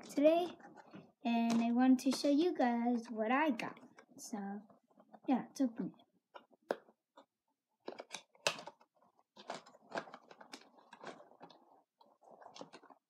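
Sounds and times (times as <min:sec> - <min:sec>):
box clicks and scrapes: 0:07.9 - 0:13.0
cardboard packaging crinkling: 0:07.9 - 0:13.0.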